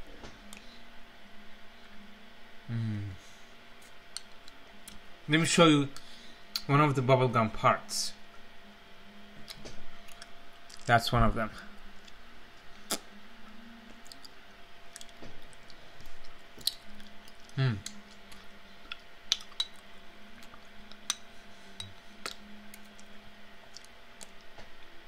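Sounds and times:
falling vocal sound: 2.7 - 3.2
mouth sounds eating: 13.9 - 19.8.

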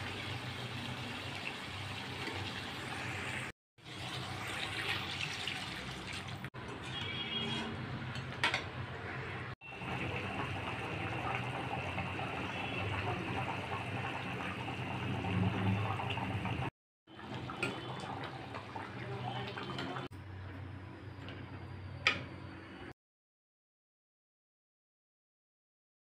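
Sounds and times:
curry boiling and bubbling: 0.0 - 7.7, 8.4 - 20.1
water pouring from a jug: 3.8 - 6.6.

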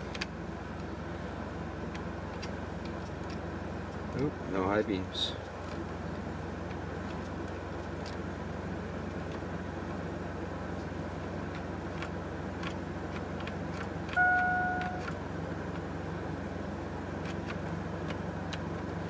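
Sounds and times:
van engine idling: 0.0 - 19.0
single beep: 14.2 - 15.2.

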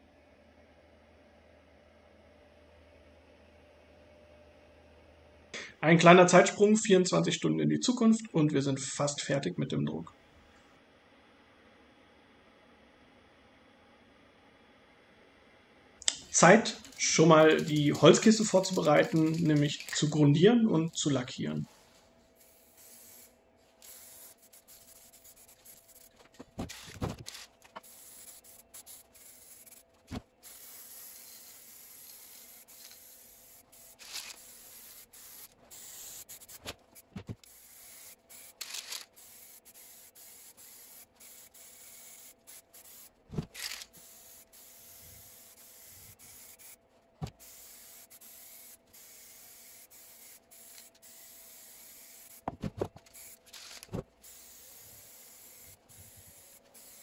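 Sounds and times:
aerosol spray can hissing: 16.9 - 20.1, 22.4 - 57.0.

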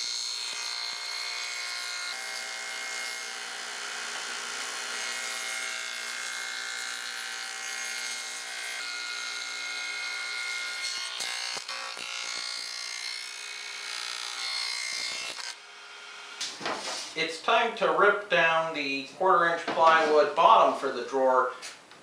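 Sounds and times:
radial arm saw cutting wood: 0.0 - 17.2.

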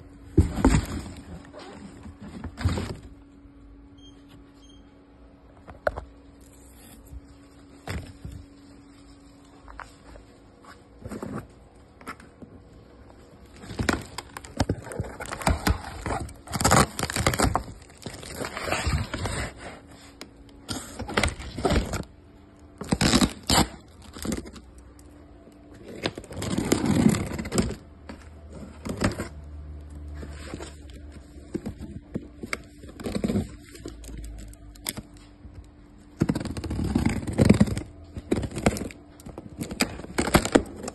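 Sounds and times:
cardboard boxes rustling and knocking: 0.1 - 3.2, 13.5 - 19.9, 30.1 - 34.2.

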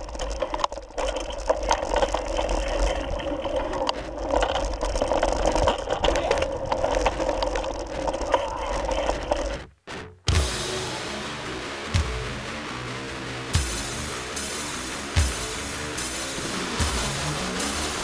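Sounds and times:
mountain bike rattling over dirt: 0.0 - 9.6.

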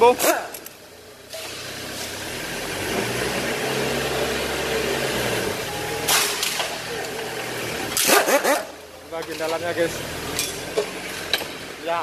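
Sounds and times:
engine running with hiss: 0.1 - 8.8.

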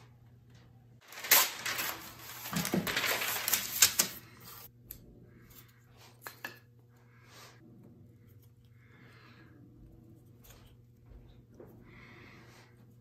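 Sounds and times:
paper crinkling and rustling: 1.0 - 4.7.

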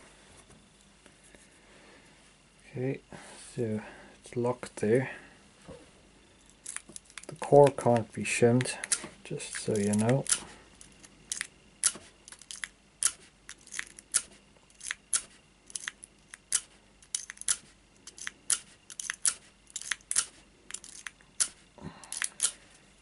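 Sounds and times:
lock pick metallic clicks: 6.5 - 22.6.

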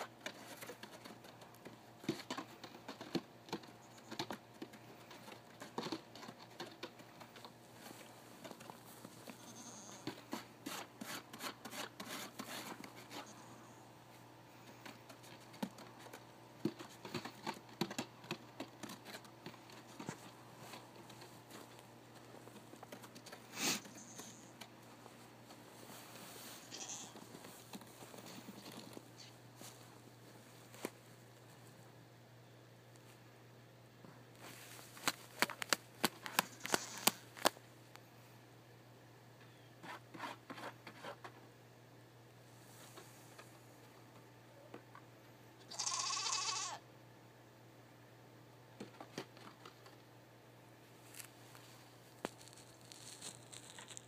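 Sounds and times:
goat bleating: 9.3 - 10.2, 23.8 - 24.6, 26.6 - 27.2, 36.5 - 37.2, 45.7 - 46.8.

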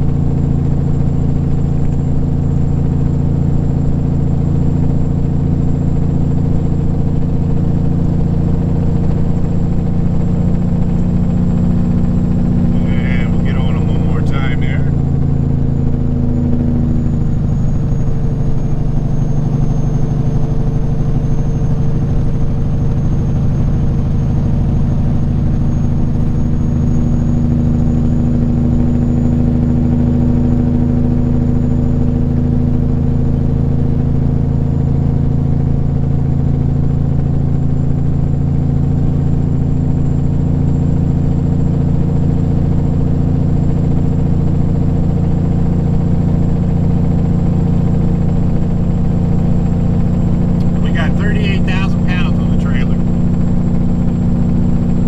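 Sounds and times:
truck diesel engine running: 0.0 - 55.0
faint high whine: 12.6 - 15.1, 50.3 - 53.4.

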